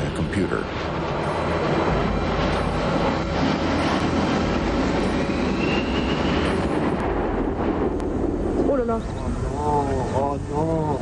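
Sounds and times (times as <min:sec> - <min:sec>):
jet engines rumbling and whining: 0:00.0 - 0:11.0.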